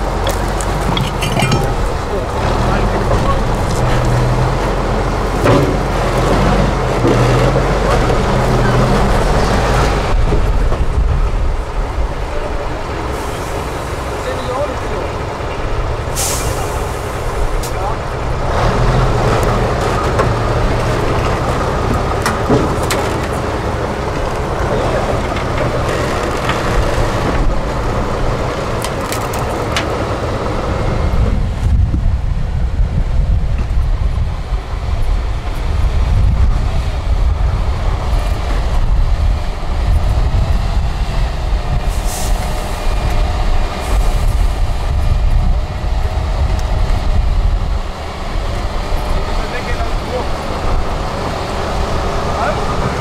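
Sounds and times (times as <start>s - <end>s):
truck diesel engine under load: 0.0s - 53.0s.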